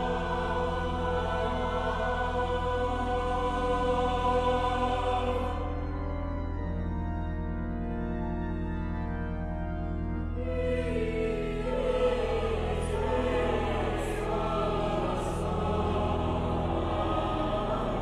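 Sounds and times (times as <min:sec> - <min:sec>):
choir singing: 0:00.0 - 0:06.2, 0:10.4 - 0:18.0
organ chords: 0:00.0 - 0:18.0.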